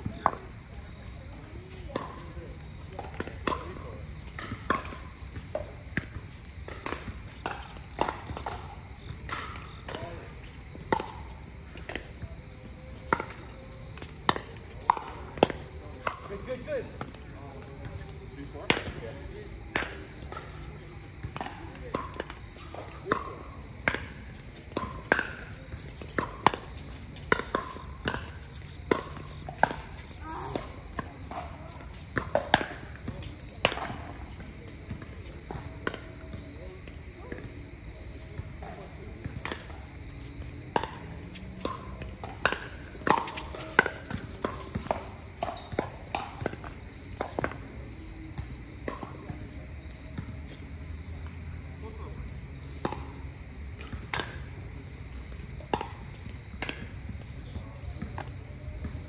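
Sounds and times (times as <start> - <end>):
ball bouncing on hard court: 1.0 - 10.2, 10.8 - 19.0, 19.7 - 36.5, 38.6 - 50.3.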